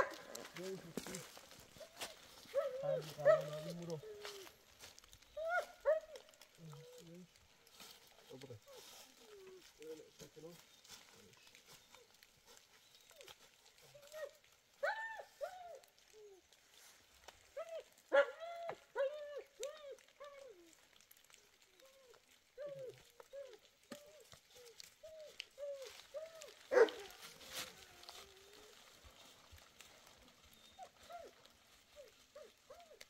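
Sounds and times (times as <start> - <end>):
animal calling: 17.6 - 29.7.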